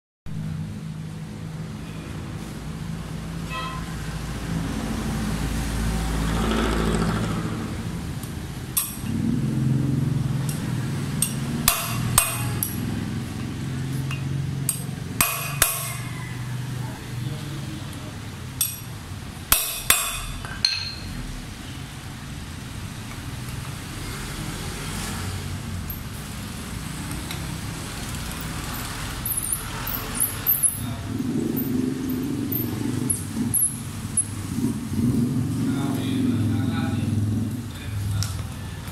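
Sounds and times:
hammer striking metal wrench: 0:08.7 - 0:09.1, 0:10.4 - 0:16.2, 0:18.6 - 0:18.9, 0:19.5 - 0:21.2, 0:29.2 - 0:30.8.

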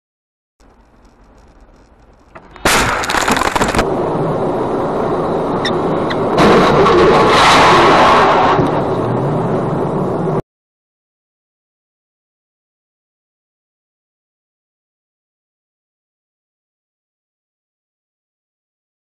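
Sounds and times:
sharp cracks: 0:00.6 - 0:03.9
continuous road noise: 0:00.6 - 0:10.4
loud vehicle crash: 0:00.8 - 0:04.3, 0:06.1 - 0:09.4.

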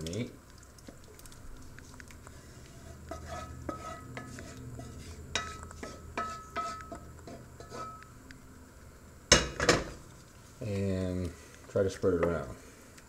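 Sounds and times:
spoon scraping skillet: 0:01.6 - 0:08.2.

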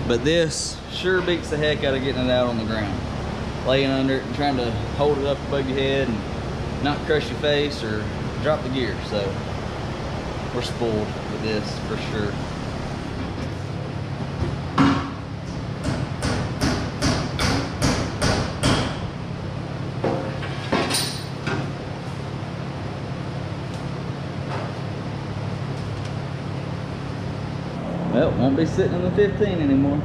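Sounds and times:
low fan hum: 0:00.0 - 0:30.0
hammer striking metal: 0:15.8 - 0:19.0.

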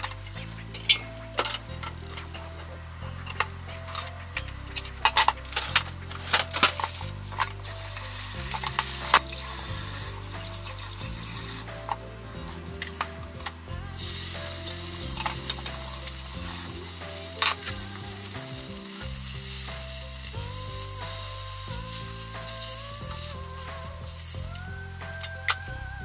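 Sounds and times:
meat sizzling in oil: 0:13.9 - 0:24.6.

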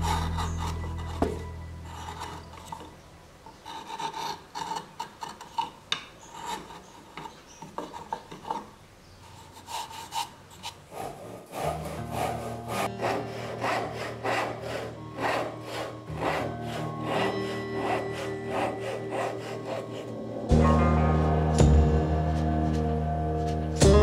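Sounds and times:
chisel scraping wood: 0:00.0 - 0:20.2.

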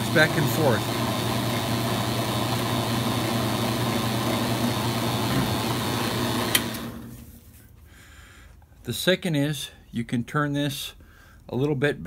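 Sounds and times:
brake lathe motor humming: 0:00.0 - 0:07.1.

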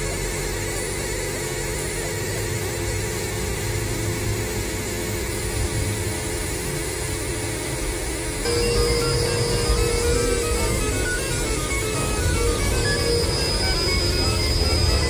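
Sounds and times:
machine-like noise drone: 0:00.0 - 0:15.0
held electronic tone: 0:08.4 - 0:15.0.

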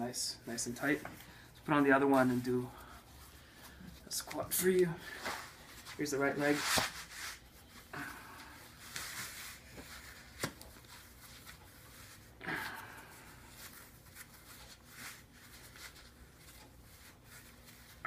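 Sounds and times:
sleeve rubbing against skin: 0:05.2 - 0:07.9.

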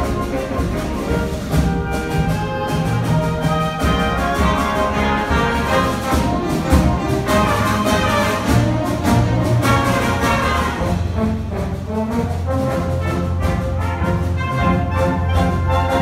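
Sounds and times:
concert band playing: 0:00.0 - 0:16.0.

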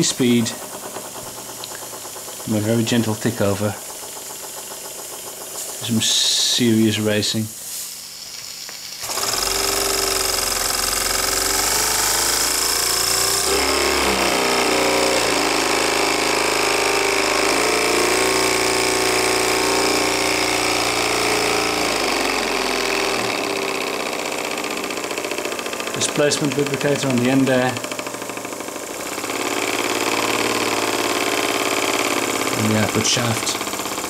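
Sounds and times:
model steam engine buzzing: 0:00.0 - 0:34.0
steam hiss: 0:00.1 - 0:10.1.

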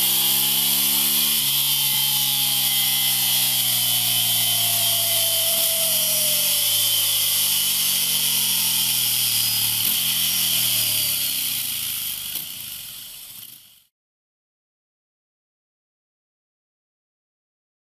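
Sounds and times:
motorcycle engine running: 0:00.0 - 0:13.9.

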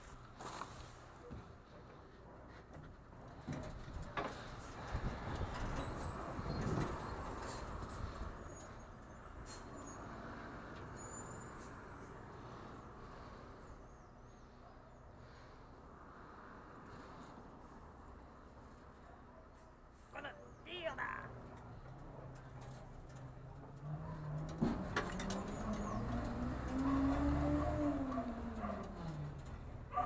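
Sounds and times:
rattles and knocks: 0:21.5 - 0:27.0.

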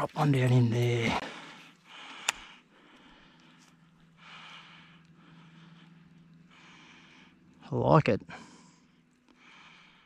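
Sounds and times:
faint steady hum: 0:00.0 - 0:10.0
sharp click: 0:02.2 - 0:02.5
soft breathing close to microphone: 0:08.3 - 0:10.0.

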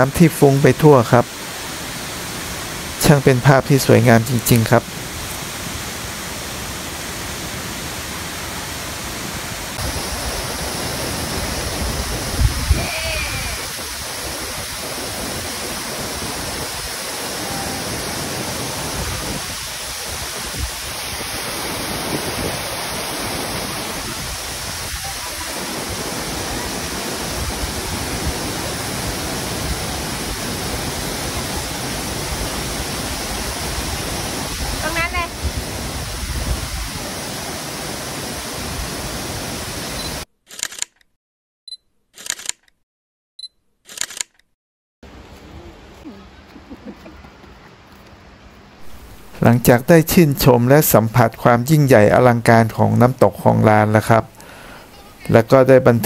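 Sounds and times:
waterfall rushing: 0:00.0 - 0:40.2.

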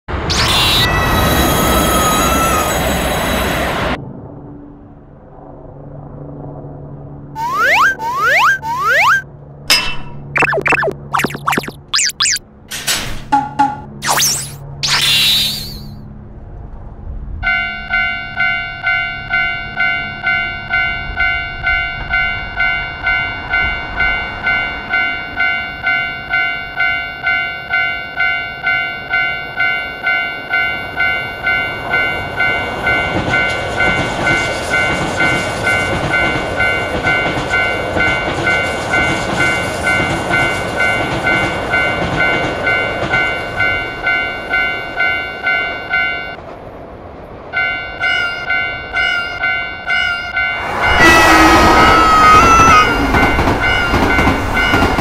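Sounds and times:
passing train rumble: 0:00.1 - 0:10.4, 0:16.0 - 0:55.0
railroad crossing bell ringing: 0:17.4 - 0:46.4, 0:47.5 - 0:55.0.

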